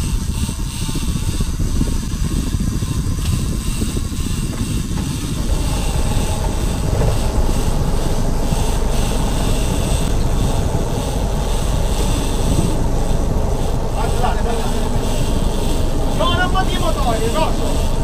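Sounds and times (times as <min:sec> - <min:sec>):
motorboat engine running: 0:00.0 - 0:18.0.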